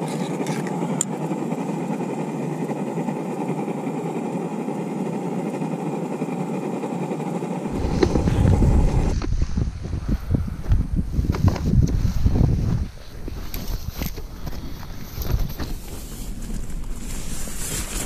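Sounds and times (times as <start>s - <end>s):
wind and sea rushing: 7.7s - 16.4s
wind buffeting microphone: 7.7s - 17.1s.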